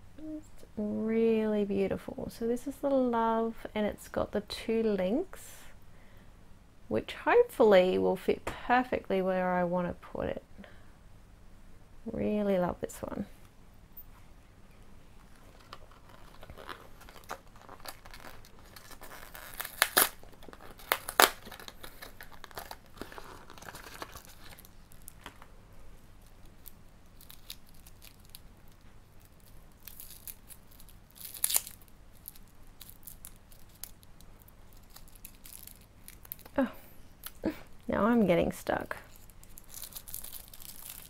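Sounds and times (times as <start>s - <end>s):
cardboard packaging rustling: 15.2s - 25.5s, 26.2s - 36.6s, 39.0s - 41.0s.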